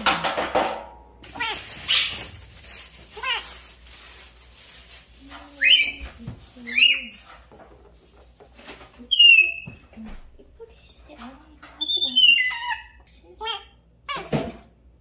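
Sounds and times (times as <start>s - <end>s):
parrot whistling and calling: 5.6s - 6.1s, 6.7s - 7.1s, 9.1s - 9.7s, 11.8s - 13.0s.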